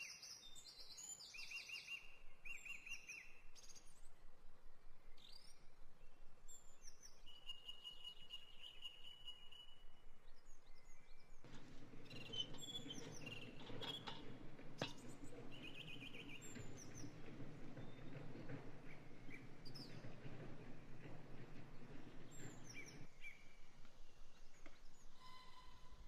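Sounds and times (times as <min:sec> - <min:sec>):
songbirds chirping and whistling: 0:05.2 - 0:26.0.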